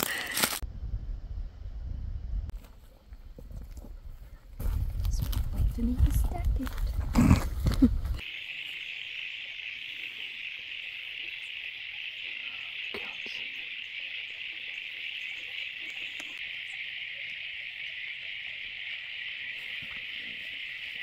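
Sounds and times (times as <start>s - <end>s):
insect chorus: 4.6s - 21.0s.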